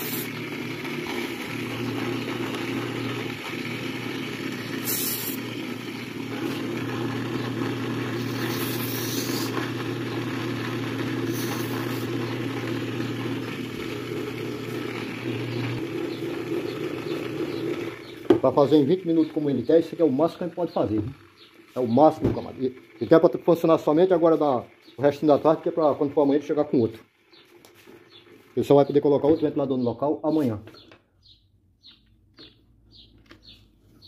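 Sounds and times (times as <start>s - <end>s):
spray can hissing: 0.0s - 0.4s, 4.7s - 5.5s, 8.1s - 9.6s, 11.2s - 12.1s
electric fan motor humming: 0.0s - 30.9s.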